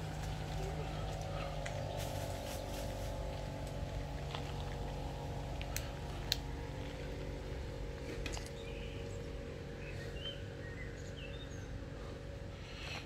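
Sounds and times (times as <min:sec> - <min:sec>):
low engine hum: 0:00.0 - 0:13.0
faint scattered clicks: 0:03.3 - 0:07.3.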